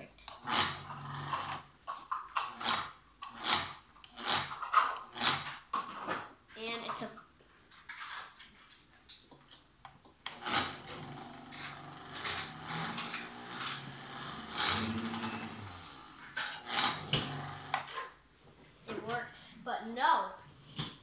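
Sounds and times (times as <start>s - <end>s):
blender motor running: 0.3s - 1.7s, 2.4s - 5.5s, 10.3s - 17.9s.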